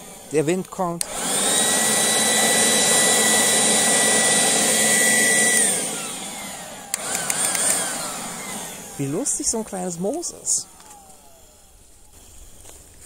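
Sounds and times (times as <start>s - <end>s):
leaf blower running: 0.0s - 13.0s
click: 6.9s - 7.8s.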